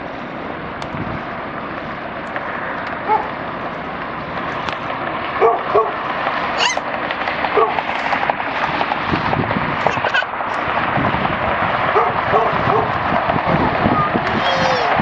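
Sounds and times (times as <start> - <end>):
crackle: 0.0 - 13.3
jet engine noise: 0.0 - 15.0
short yelping calls: 6.6 - 6.9.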